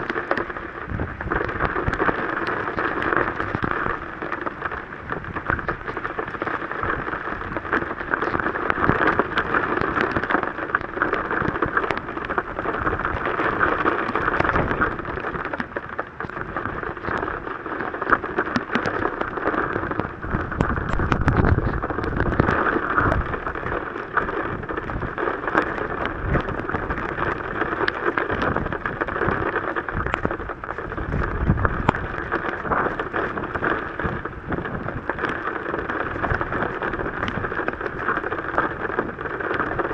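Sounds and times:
heavy rain on vehicle roof: 0.0 - 39.9.

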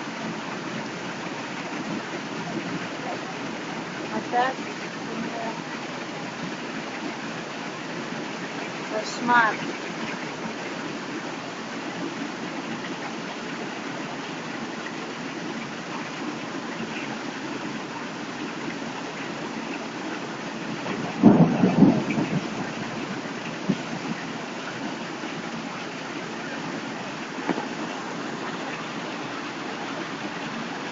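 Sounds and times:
heavy rain pouring: 0.0 - 30.9
thunder clap: 20.8 - 24.2.

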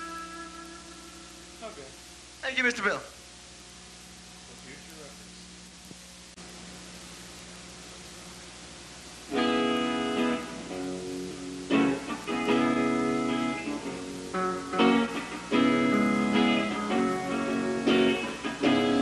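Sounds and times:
guitar chords strummed: 0.0 - 1.8, 9.3 - 19.0
tape hiss: 0.0 - 19.0.

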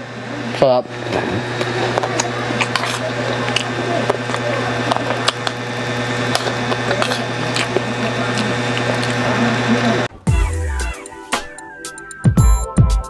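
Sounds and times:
mechanical hum: 0.0 - 10.1
person chewing: 2.2 - 5.6, 6.3 - 9.4.

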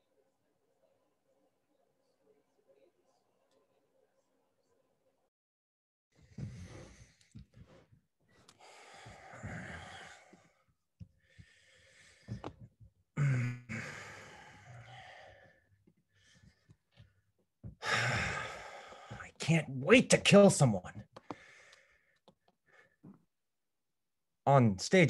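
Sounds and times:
person sighing and exhaling: 13.2 - 15.6, 17.7 - 19.3.

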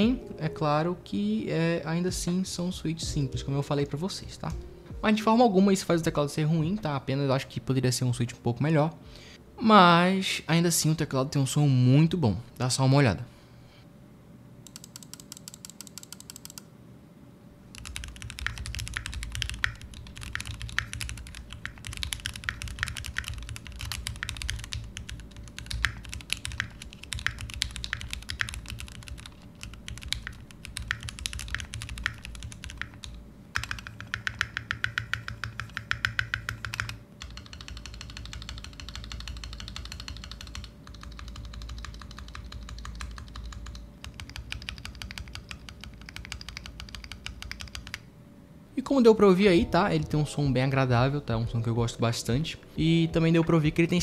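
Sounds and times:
mechanical keyboard typing: 14.7 - 16.7, 17.7 - 48.0.

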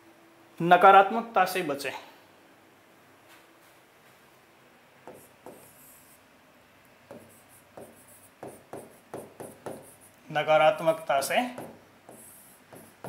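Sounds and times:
marker pen writing on whiteboard: 5.0 - 6.2, 7.1 - 10.2, 10.9 - 13.0.

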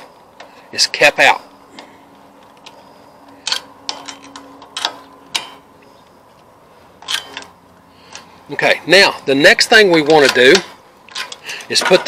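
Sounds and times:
hand tools clicking and tapping: 1.7 - 5.7, 10.0 - 12.0.

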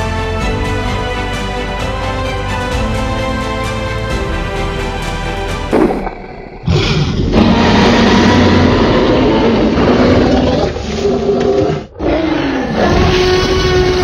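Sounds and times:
deep rumble: 5.3 - 11.8
dinosaur roar: 5.7 - 14.0.

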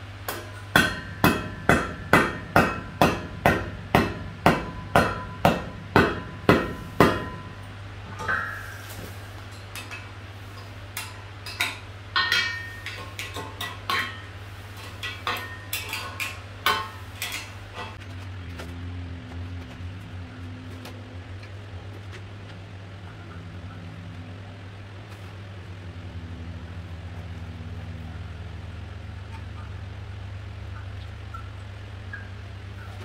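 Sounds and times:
hammer striking steel plate: 0.3 - 8.9, 11.0 - 14.3.

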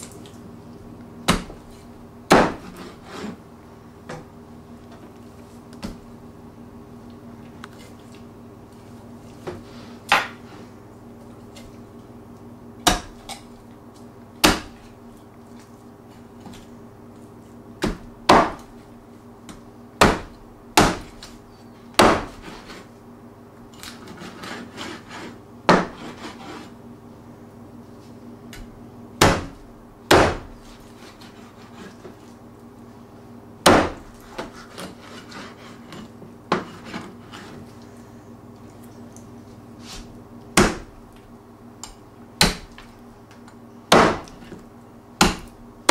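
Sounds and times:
low steady hum: 0.0 - 45.9
cleaver chopping on cutting board: 2.3 - 2.7, 12.8 - 13.3, 14.4 - 14.8, 17.8 - 18.7, 20.0 - 21.3, 22.0 - 22.5, 25.7 - 26.3, 29.2 - 30.6, 33.6 - 34.8, 40.6 - 40.9, 42.4 - 42.8, 43.9 - 44.4, 45.2 - 45.5.

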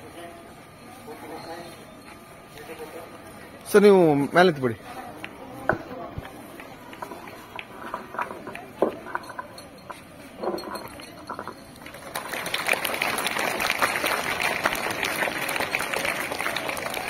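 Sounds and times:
murmur of voices: 0.0 - 17.0
children clapping: 11.8 - 17.0.

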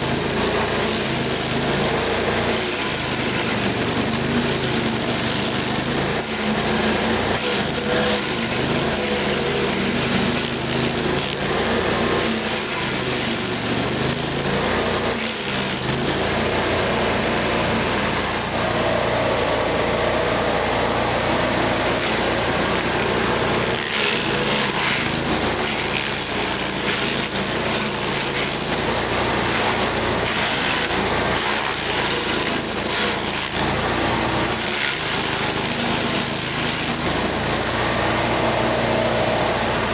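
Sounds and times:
cutter teeth grinding wood: 0.0 - 39.9
stump grinder engine: 0.0 - 39.9.

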